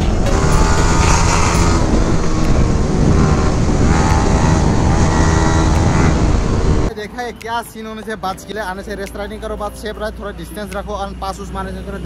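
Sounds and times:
motorcycle engine running: 0.0s - 6.9s
wind buffeting microphone: 0.0s - 6.9s.

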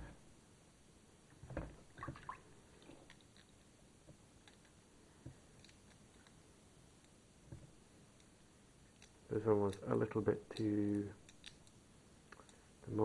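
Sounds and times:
wet squelches and clicks: 8.2s - 9.9s, 10.5s - 12.6s.

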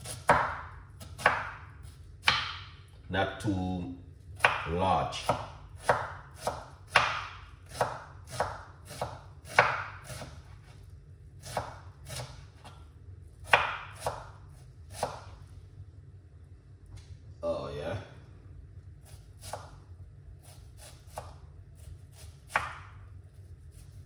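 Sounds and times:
knife chopping on cutting board: 0.0s - 2.7s, 4.4s - 10.8s, 11.4s - 12.8s, 13.4s - 15.4s, 19.1s - 19.8s, 20.4s - 23.1s.

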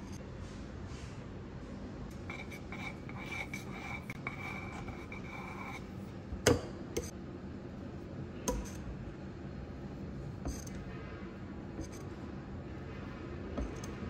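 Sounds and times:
spatula scraping cream: 2.2s - 6.1s.

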